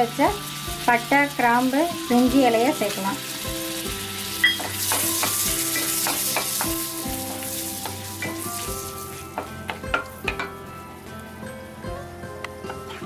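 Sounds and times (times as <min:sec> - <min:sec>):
spices sizzling in oil: 0:00.0 - 0:13.0
wooden spatula knocking pan: 0:04.5 - 0:06.9.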